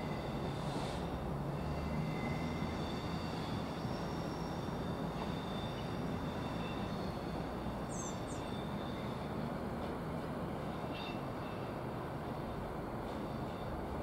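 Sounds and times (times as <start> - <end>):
diesel locomotive engine droning: 0.0 - 14.0.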